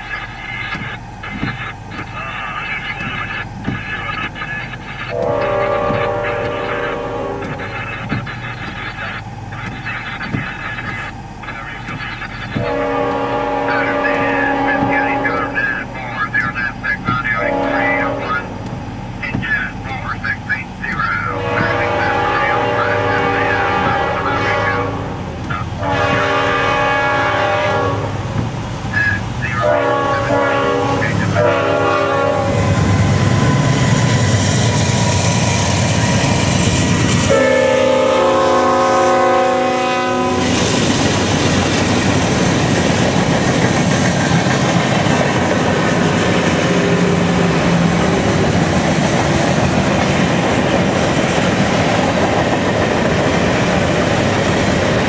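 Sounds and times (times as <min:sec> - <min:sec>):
freight cars rumbling: 0:00.0 - 0:55.0
locomotive horn blasts: 0:00.6 - 0:11.0, 0:11.8 - 0:18.7, 0:20.9 - 0:34.3, 0:37.2 - 0:40.8.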